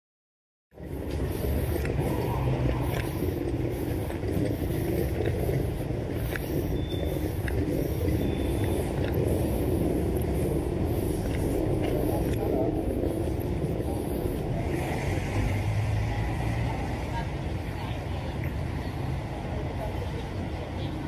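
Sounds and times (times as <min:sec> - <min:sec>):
road traffic rumble: 0:00.7 - 0:21.0
footsteps on pavement: 0:00.8 - 0:16.0.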